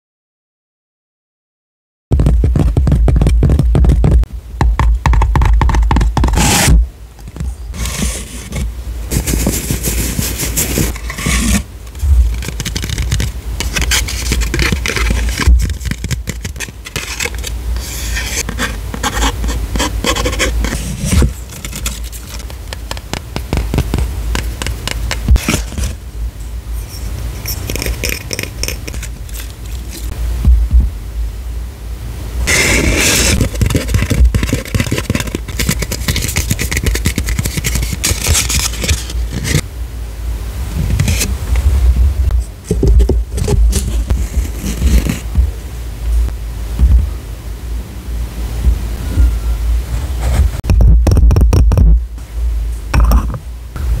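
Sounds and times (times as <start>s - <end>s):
cardboard tube scraping: 5.2s - 26.0s, 26.8s - 30.2s, 32.5s - 39.6s, 40.8s - 41.4s, 42.3s - 45.6s, 49.9s - 52.0s
wooden lid scraping on jar: 7.3s - 26.0s, 26.9s - 30.1s
paper wrapping crinkling: 7.7s - 26.0s, 27.4s - 30.1s, 32.5s - 39.6s.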